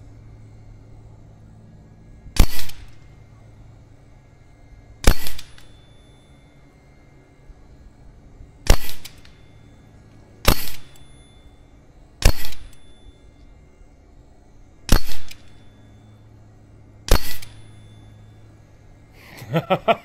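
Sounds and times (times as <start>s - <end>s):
air rifle shots: 2.4s - 3.0s, 5.0s - 5.7s, 8.6s - 9.4s, 10.4s - 11.0s, 12.2s - 12.8s, 14.8s - 15.6s, 17.1s - 17.7s.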